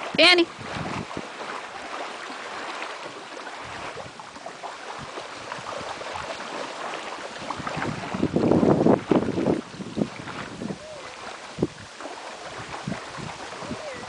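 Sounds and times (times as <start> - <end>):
lake water lapping: 0.0 - 14.0.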